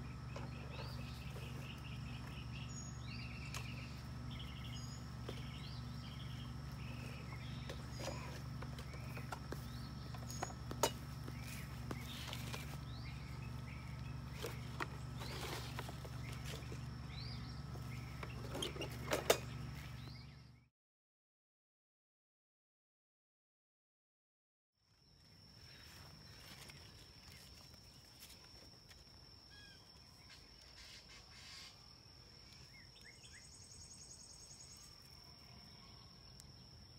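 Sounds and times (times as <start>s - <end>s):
small birds chirping: 0.0s - 20.7s, 25.5s - 36.9s
steady low hum: 0.0s - 20.7s
leaves rustling: 11.0s - 17.0s.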